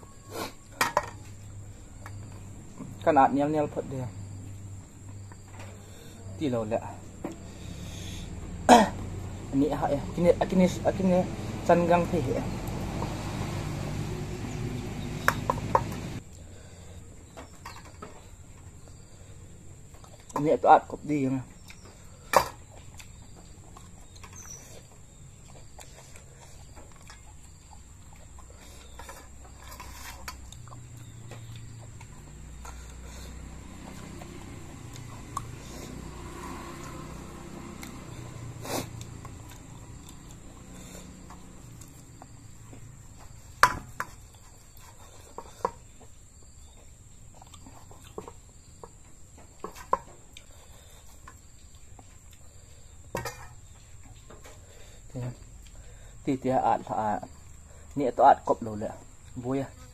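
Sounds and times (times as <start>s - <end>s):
person chewing wetly: 21.6s - 36.0s, 38.9s - 42.1s, 47.3s - 48.6s.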